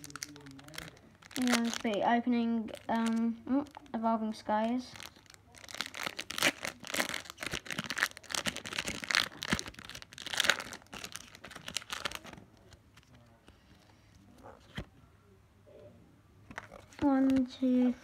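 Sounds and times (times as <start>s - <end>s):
foil wrapper crinkling and tearing: 0.0s - 4.0s, 4.7s - 12.8s.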